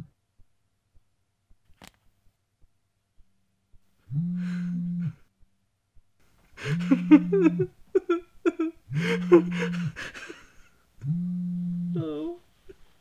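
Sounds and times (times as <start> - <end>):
man stifling laughter: 6.6 - 10.8
phone vibrating buzz: 11.0 - 12.0.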